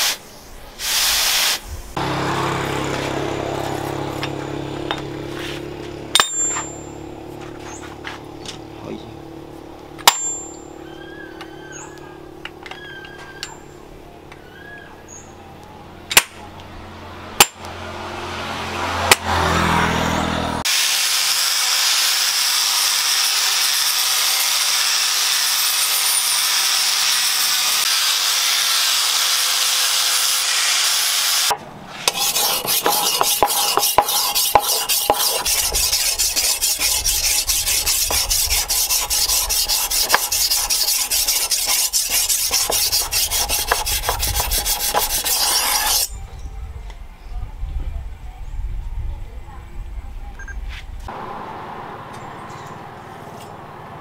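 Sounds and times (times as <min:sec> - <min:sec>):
angle grinder grinding steel: 0:02.0 - 0:08.1, 0:20.7 - 0:46.1
blade scraping on whetstone: 0:03.6 - 0:06.9, 0:31.9 - 0:46.1.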